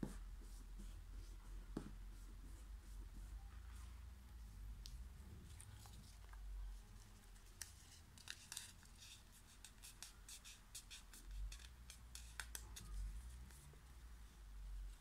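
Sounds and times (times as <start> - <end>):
paper folding and crackling: 7.0 - 9.2.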